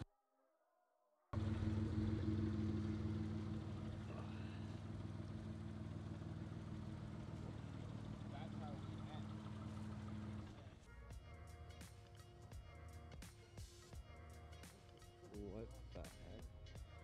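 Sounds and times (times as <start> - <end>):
car engine idling: 1.4 - 10.8.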